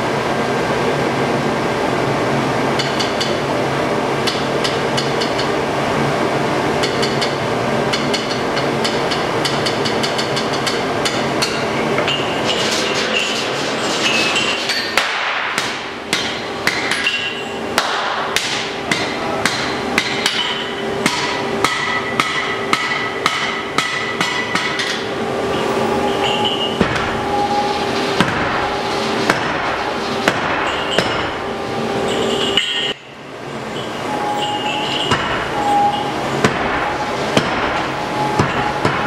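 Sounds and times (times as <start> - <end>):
steady low hum: 0.0 - 39.0
hammer striking metal on anvil: 14.6 - 25.1, 28.2 - 28.6, 29.3 - 31.4, 34.6 - 39.0.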